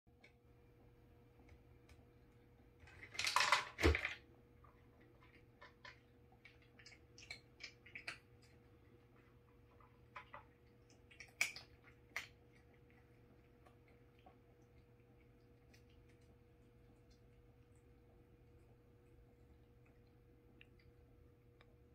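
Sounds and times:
cat crunching kibble: 0:01.4 - 0:21.8
kibble clattering into tray: 0:02.9 - 0:04.2.

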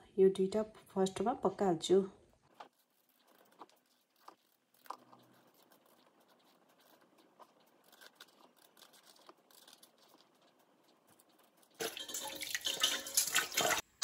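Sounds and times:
knife peeling gourd skin: 0:02.5 - 0:12.0.

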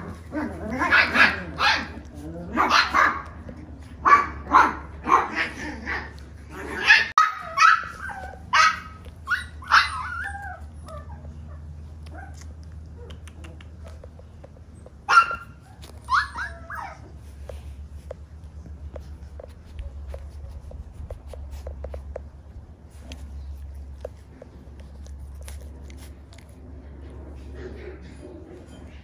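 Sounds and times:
puppy yipping and barking: 0:00.0 - 0:03.4, 0:06.7 - 0:12.4, 0:15.0 - 0:17.2
puppy whimpering: 0:07.3 - 0:17.3.

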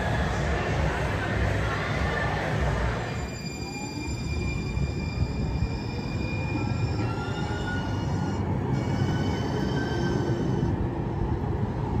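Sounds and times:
train rumbling past: 0:00.0 - 0:12.0
whining wheels: 0:02.9 - 0:12.0.

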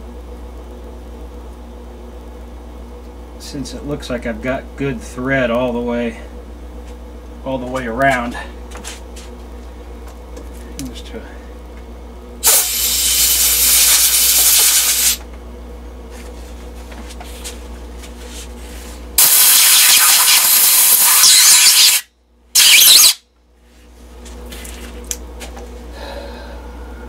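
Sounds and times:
compressed air blow gun blasting: 0:12.4 - 0:15.2, 0:19.2 - 0:23.2.

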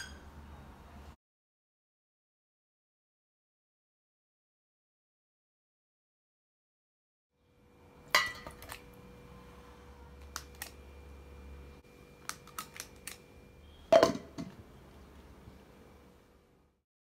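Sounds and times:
faint steady hum: 0:07.4 - 0:16.8.

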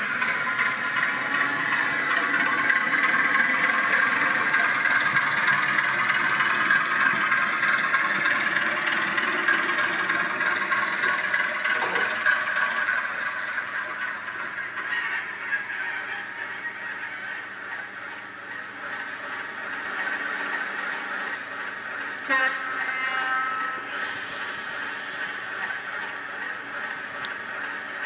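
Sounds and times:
model train rattling on track: 0:00.0 - 0:28.0.

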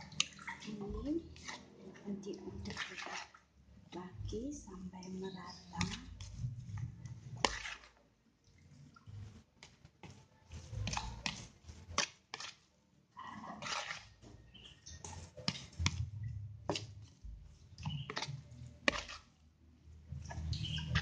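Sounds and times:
spoon scraping a plastic bowl: 0:01.3 - 0:02.0, 0:05.2 - 0:08.0, 0:10.0 - 0:12.7, 0:13.4 - 0:16.1, 0:16.7 - 0:19.4.

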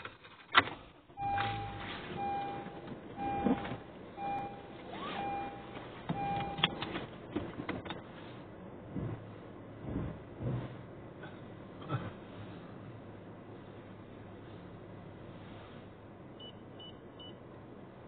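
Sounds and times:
car warning chime beeping: 0:01.2 - 0:06.9, 0:16.4 - 0:17.4.

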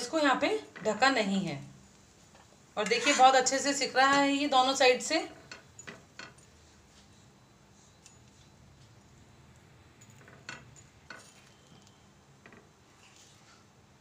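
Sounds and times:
spatula scraping on iron griddle: 0:02.8 - 0:03.6.

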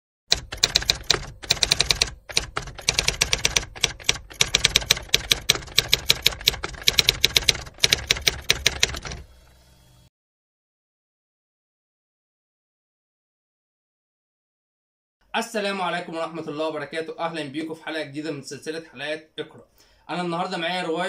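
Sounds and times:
typewriter keys clacking: 0:00.3 - 0:09.2.

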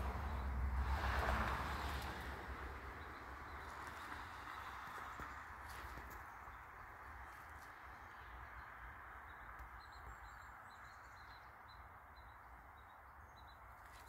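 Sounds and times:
bird chirping: 0:06.2 - 0:14.0.

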